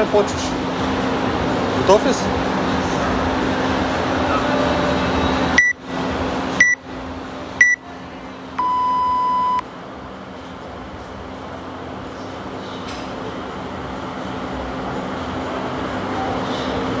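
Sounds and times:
long lower timer beep: 0:06.6 - 0:06.8, 0:08.6 - 0:09.6
short high timer beeps: 0:08.6 - 0:09.6.

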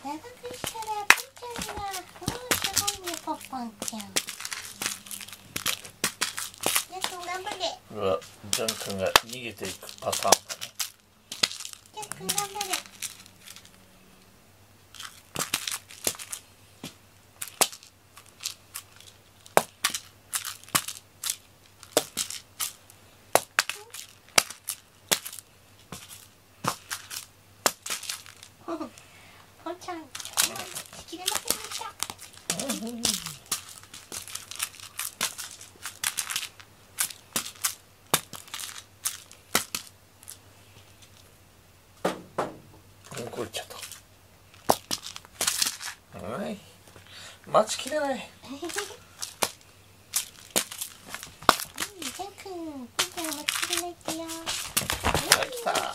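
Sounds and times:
crinkly rustles: 0:00.0 - 0:13.8, 0:14.9 - 0:16.5, 0:17.4 - 0:23.0, 0:23.6 - 0:29.0, 0:29.8 - 0:41.3, 0:43.0 - 0:46.0, 0:47.7 - 0:55.9
toy tapping on foam mats: 0:00.4 - 0:07.8, 0:23.3 - 0:28.0, 0:30.2 - 0:36.4
toy mouse tapping on foam mat: 0:00.5 - 0:03.2.

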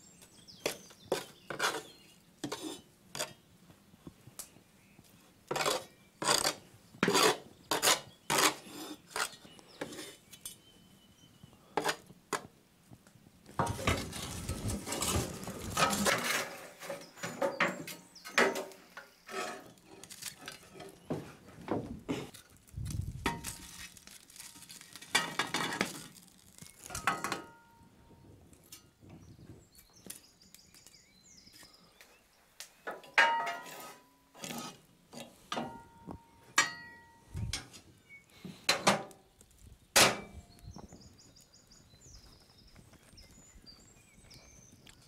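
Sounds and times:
metal shovel scraping cast iron: 0:05.5 - 0:10.6, 0:13.6 - 0:21.1, 0:33.0 - 0:37.8.

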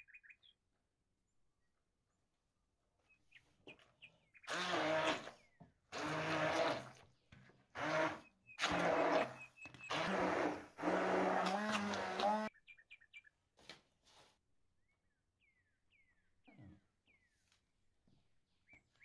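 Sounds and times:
stick blender motor hum: 0:04.5 - 0:07.0, 0:07.8 - 0:12.5.

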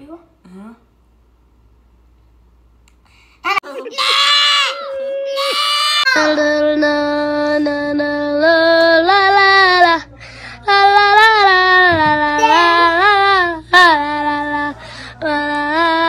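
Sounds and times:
person singing in a high voice: 0:04.7 - 0:16.0.

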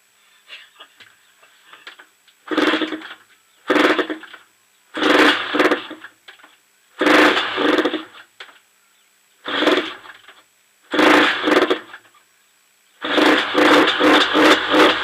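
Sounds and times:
motorcycle engine kick-starting: 0:02.4 - 0:04.4, 0:05.0 - 0:06.1, 0:07.0 - 0:08.2, 0:09.5 - 0:10.3, 0:10.9 - 0:12.0, 0:13.0 - 0:15.0.

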